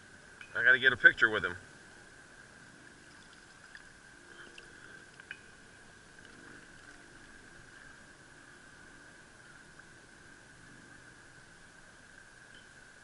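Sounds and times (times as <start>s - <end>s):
faint high hum: 0.0s - 13.0s
water splashing: 2.8s - 8.1s
water dripping: 2.8s - 8.8s.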